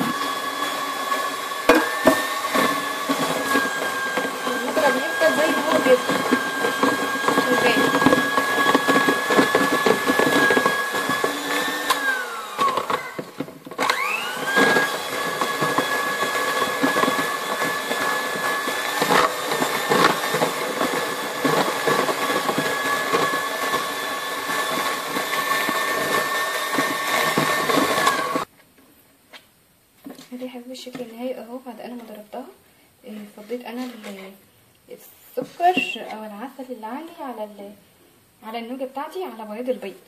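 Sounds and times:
electric hand mixer running: 0:00.0 - 0:28.5.

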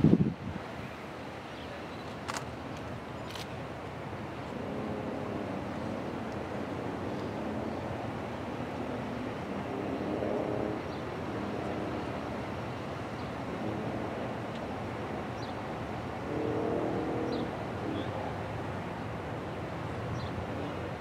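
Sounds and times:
wind rumble: 0:00.0 - 0:00.7
distant locomotive horn chord: 0:04.6 - 0:08.0, 0:09.4 - 0:18.3.

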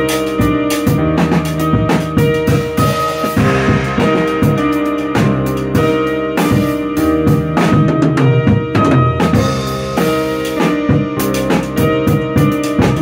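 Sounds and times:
drum kit groove: 0:00.0 - 0:13.0
sustained accompanying music: 0:02.9 - 0:07.0.

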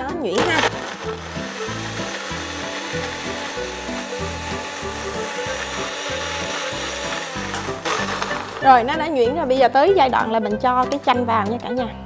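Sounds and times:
blender running: 0:00.4 - 0:08.9.

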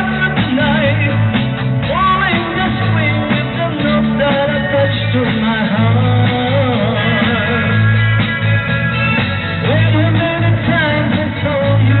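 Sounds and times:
person singing: 0:00.0 - 0:07.9, 0:09.6 - 0:12.0
bass guitar: 0:00.0 - 0:12.0
drums: 0:00.0 - 0:12.0
electric guitar: 0:00.0 - 0:12.0.

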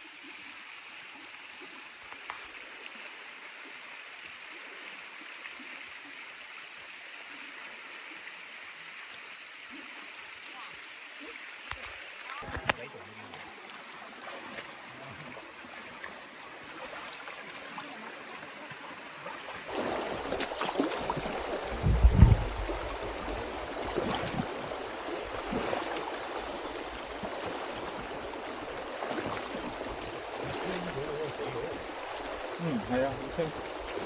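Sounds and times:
river running over stones: 0:00.0 - 0:31.1
steady high whine: 0:00.0 - 0:34.0
splashing in water: 0:11.7 - 0:15.4, 0:16.0 - 0:22.5
heavy low thump: 0:21.8 - 0:22.7.

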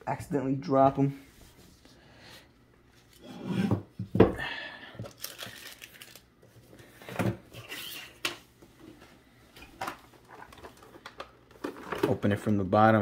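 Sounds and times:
plastic packaging crinkling: 0:05.1 - 0:06.4.

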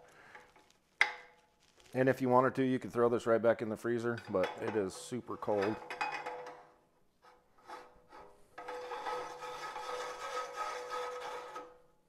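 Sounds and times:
rasping scrape: 0:07.2 - 0:11.8.

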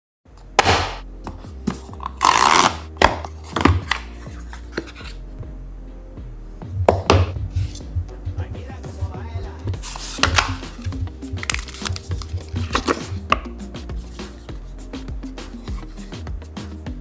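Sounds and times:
background music low notes: 0:00.3 - 0:17.0
scraping rub: 0:03.4 - 0:05.2, 0:09.7 - 0:10.9, 0:11.6 - 0:16.3
cardboard packaging handling: 0:09.8 - 0:13.2.

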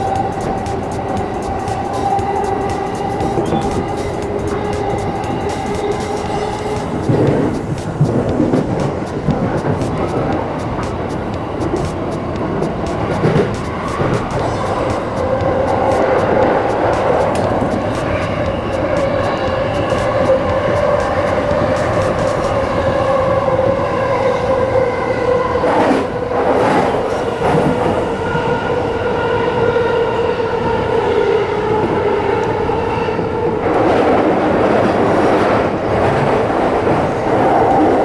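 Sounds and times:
clacks: 0:00.0 - 0:22.8
wheels rumbling on rail: 0:00.0 - 0:38.0.

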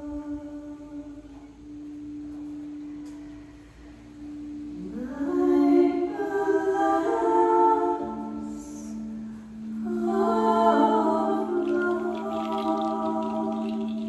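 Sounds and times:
singing bowl ringing: 0:01.3 - 0:14.0
woman singing wordless note: 0:09.8 - 0:14.0.

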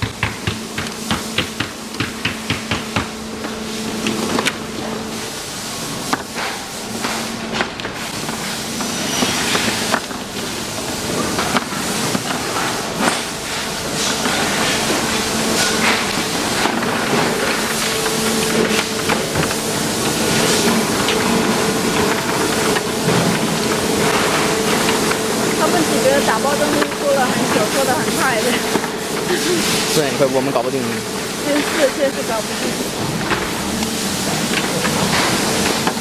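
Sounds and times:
machine hum and hiss: 0:00.0 - 0:36.0
plastic bags rustling: 0:09.7 - 0:36.0.

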